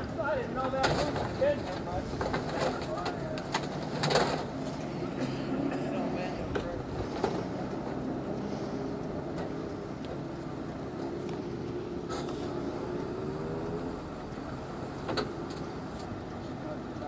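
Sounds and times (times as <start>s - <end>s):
engine idling: 0.0s - 17.0s.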